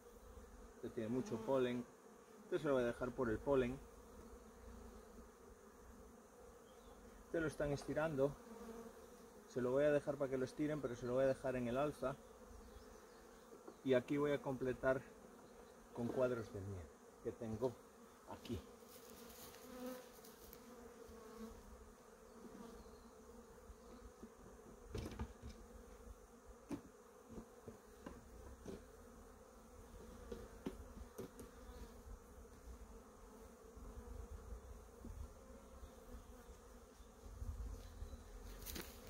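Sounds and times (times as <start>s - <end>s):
bees buzzing: 0.0s - 39.0s
wooden hive frames knocking: 24.7s - 25.6s, 30.3s - 31.6s.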